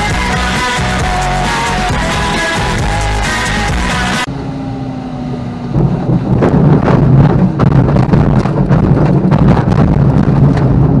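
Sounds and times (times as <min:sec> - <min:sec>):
glider wheel rumbling on grass: 0:05.7 - 0:11.0.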